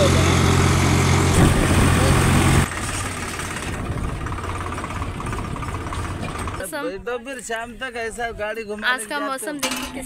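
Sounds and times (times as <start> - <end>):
tractor diesel engine droning: 0.0 - 6.7.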